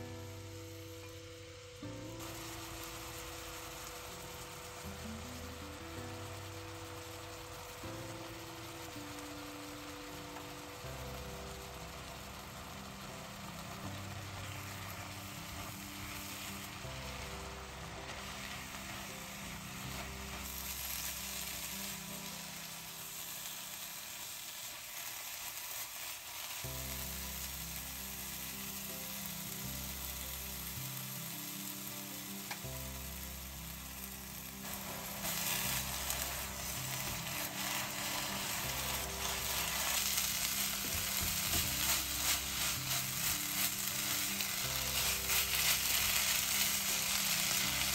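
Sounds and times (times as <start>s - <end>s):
apples sizzling in a pan: 0.0s - 47.9s
spatula stirring: 34.6s - 47.9s.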